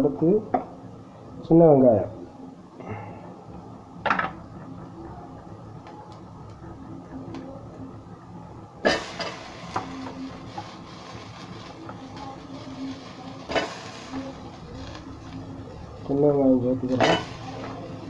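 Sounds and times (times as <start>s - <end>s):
ladle stirring and scraping seeds: 9.4s - 15.4s.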